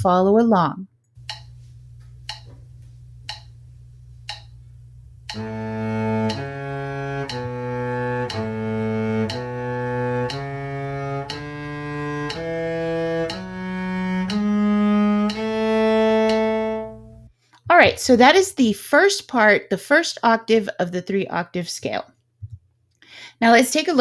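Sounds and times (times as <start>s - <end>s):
sharp clicks: 1.2s - 1.6s, 2.2s - 2.5s, 3.3s - 3.5s, 4.3s - 4.6s
cello playing a scale: 5.2s - 17.3s.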